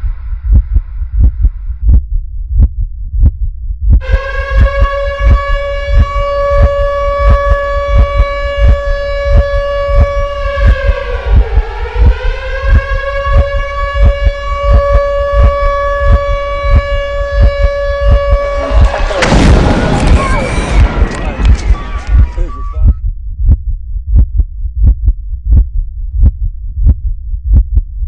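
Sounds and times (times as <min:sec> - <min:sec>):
low heartbeat-like thumping: 0:00.0 - 0:28.0
air-raid siren: 0:04.0 - 0:23.0.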